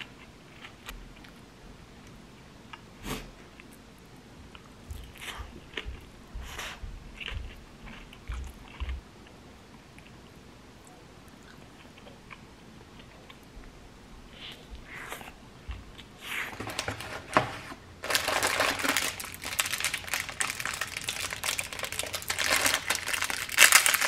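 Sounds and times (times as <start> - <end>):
person chewing food: 4.5 - 10.4, 11.3 - 16.6.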